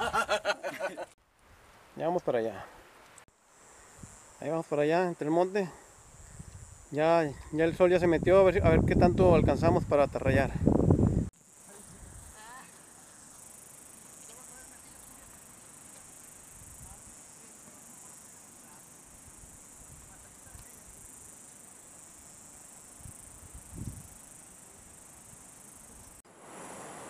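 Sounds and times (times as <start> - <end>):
high-pitched insect chorus: 3.4 - 9.4, 10.6 - 27.0.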